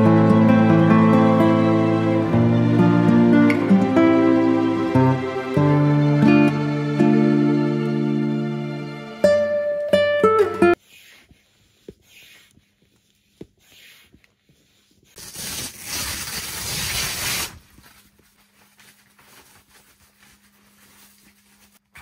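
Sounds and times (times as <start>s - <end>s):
fabric scraping stretch: 10.7s - 22.0s
tent fabric rustling: 15.1s - 22.0s.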